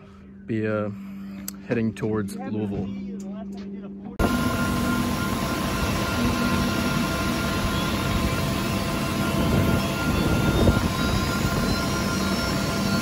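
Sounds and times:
helicopter engine and rotor noise: 4.2s - 13.0s
high whining tones: 4.2s - 13.0s.

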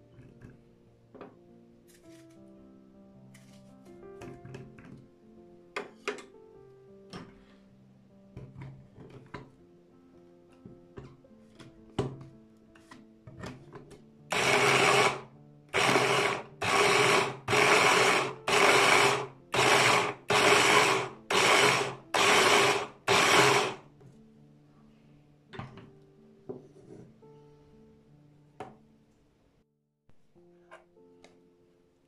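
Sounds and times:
electric food chopper whizzing: 14.3s - 23.8s.

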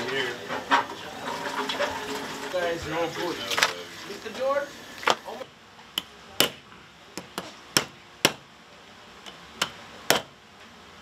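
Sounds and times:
hammer knocking crab shell: 6.0s - 6.6s, 7.2s - 8.5s, 9.3s - 10.4s.

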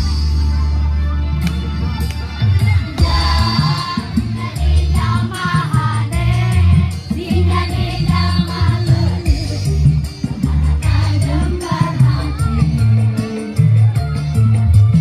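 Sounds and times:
music with heavy bass: 0.0s - 15.0s
children's choir singing: 3.0s - 9.3s, 10.4s - 12.6s.

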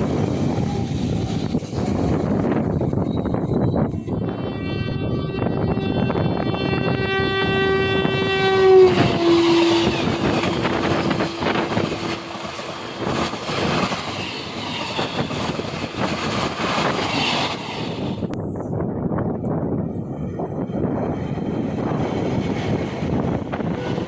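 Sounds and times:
train horn: 3.9s - 12.9s.

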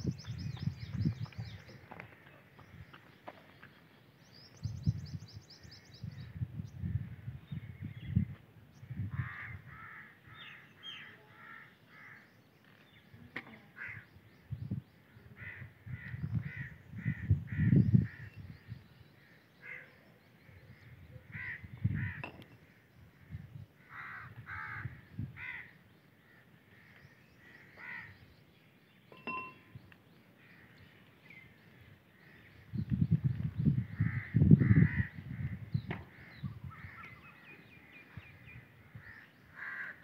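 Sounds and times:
crows cawing: 9.0s - 12.3s, 13.8s - 14.1s, 15.4s - 18.3s, 19.3s - 20.0s, 20.8s - 28.2s, 33.9s - 37.4s, 38.8s - 40.0s.

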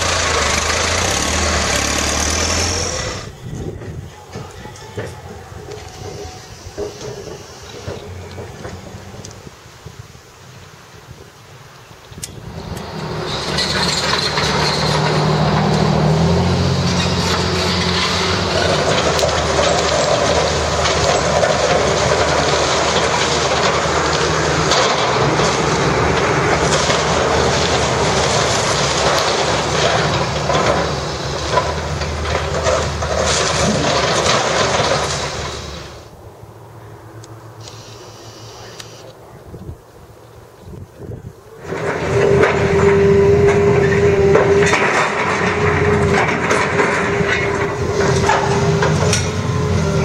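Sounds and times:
debris crunching and clattering: 0.0s - 9.4s, 12.7s - 36.1s, 41.6s - 50.0s
excavator diesel engine under load: 0.0s - 10.0s, 12.2s - 39.0s, 40.7s - 50.0s.

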